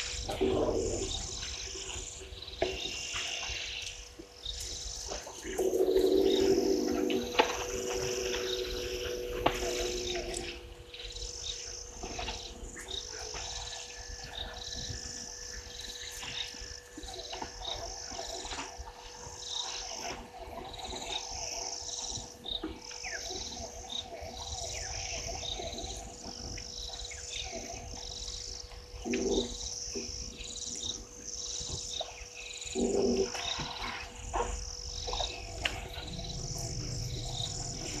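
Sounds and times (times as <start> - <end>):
frogs calling: 0.0 - 38.0
insects chirping in pulses: 0.0 - 38.0
steady faint tone: 4.8 - 16.8, 33.8 - 38.0.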